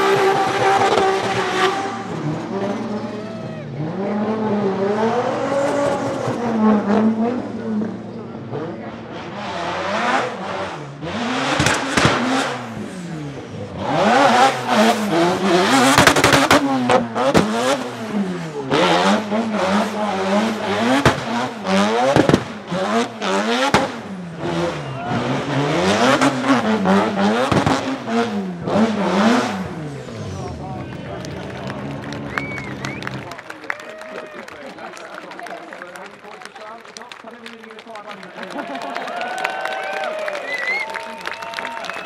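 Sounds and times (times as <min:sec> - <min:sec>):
rotary engine revving: 0:00.0 - 0:33.4
sharp cracks from car: 0:11.5 - 0:12.6, 0:15.8 - 0:17.9, 0:20.9 - 0:22.7, 0:23.6 - 0:24.1, 0:27.4 - 0:28.0.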